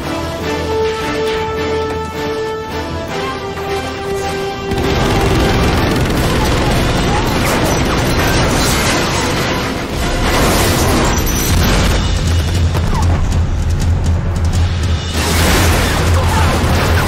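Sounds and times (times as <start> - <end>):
loud action score: 0.0 - 17.0
debris crashing: 4.7 - 17.0
large explosions: 4.7 - 17.0.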